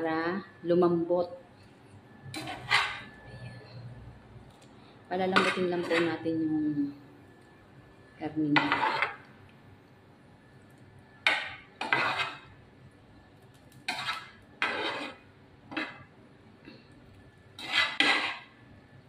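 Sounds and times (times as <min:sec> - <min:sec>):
metal tongs scraping frying pan: 0:02.3 - 0:03.1, 0:05.2 - 0:06.2, 0:08.6 - 0:09.2, 0:11.2 - 0:12.6, 0:13.7 - 0:16.1, 0:17.6 - 0:18.6.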